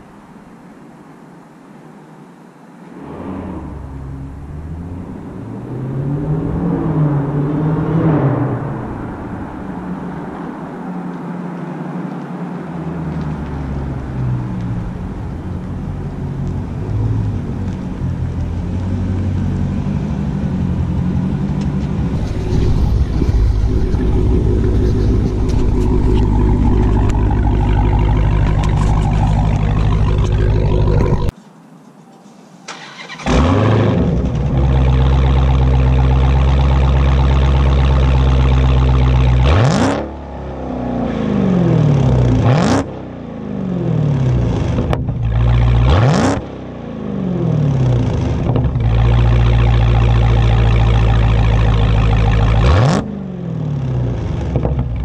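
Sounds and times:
car engine passing by: 2.8 - 31.3.

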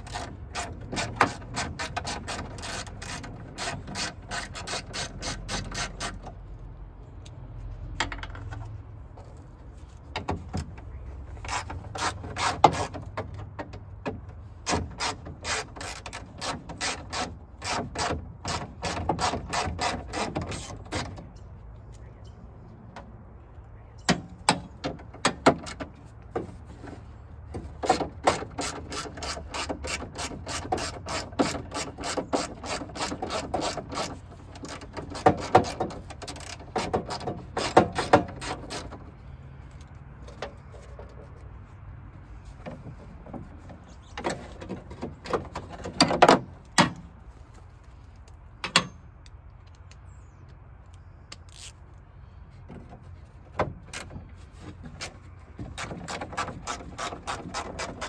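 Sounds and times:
metal clicks and knocks: 7.2 - 8.8, 10.1 - 21.4, 24.0 - 26.6, 27.4 - 39.1, 42.6 - 47.2, 48.2 - 50.6.

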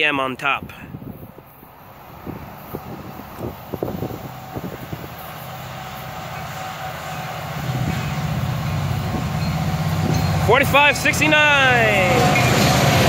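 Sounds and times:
diesel locomotive rumble: 0.0 - 13.0.

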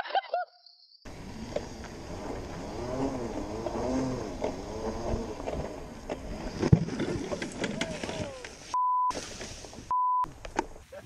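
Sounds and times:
electric drive whining: 1.1 - 8.8.

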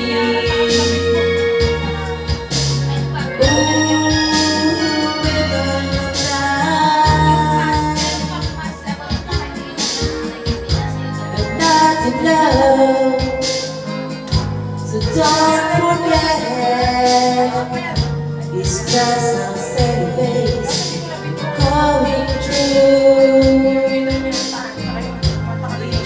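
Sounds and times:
karaoke backing track: 0.0 - 26.0
woman singing into microphone: 0.0 - 26.0.

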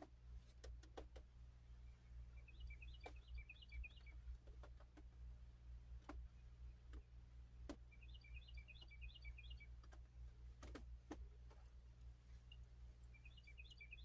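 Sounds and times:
steady low hum: 0.0 - 14.0
faint high chirps: 1.8 - 4.2, 7.9 - 9.8, 12.4 - 14.0.

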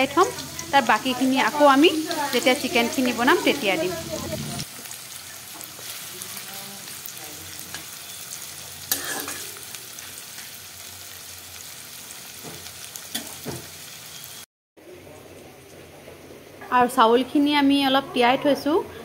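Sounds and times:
onions sizzling in hot oil: 0.0 - 14.5.

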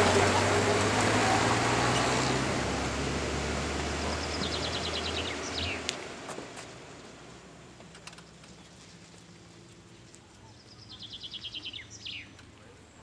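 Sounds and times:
racing car engine drone: 0.0 - 8.2.

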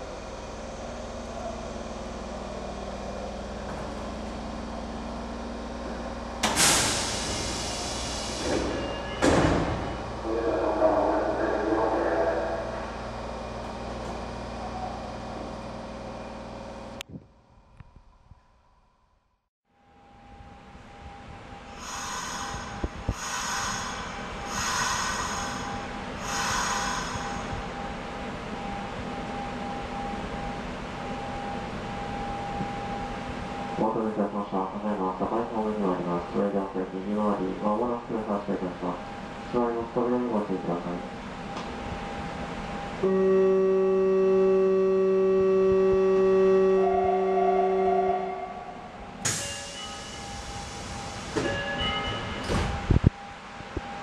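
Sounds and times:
train humming at platform: 0.0 - 18.1, 19.7 - 54.0
loud hiss of released air: 6.5 - 8.6, 21.8 - 27.3
steady high tone: 25.1 - 54.0.

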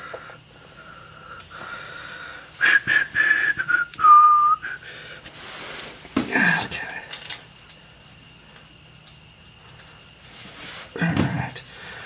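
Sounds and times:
man whistling: 2.6 - 4.8
hand tools clicking: 3.9 - 4.1.

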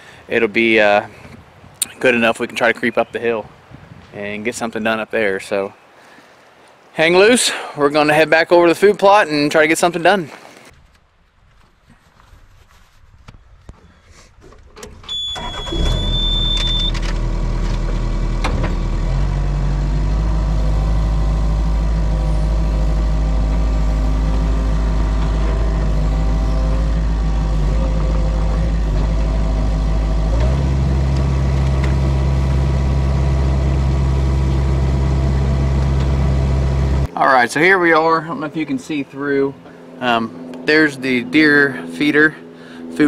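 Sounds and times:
diesel engine starting and running: 14.8 - 43.0
high beep: 15.1 - 17.0.

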